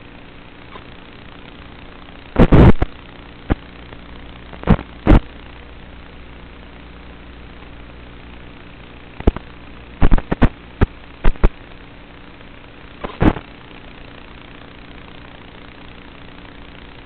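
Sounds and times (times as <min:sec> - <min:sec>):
steady hiss and hum: 0:00.0 - 0:17.0
loud crackling pops: 0:00.5 - 0:05.6, 0:09.0 - 0:11.7, 0:12.4 - 0:15.0.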